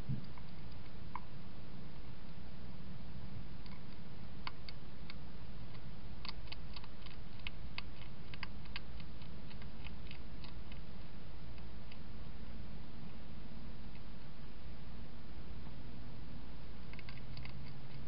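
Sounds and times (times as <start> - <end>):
steady low hum: 0.0 - 18.0
hedgehog crunching food: 3.6 - 12.0, 16.8 - 18.0.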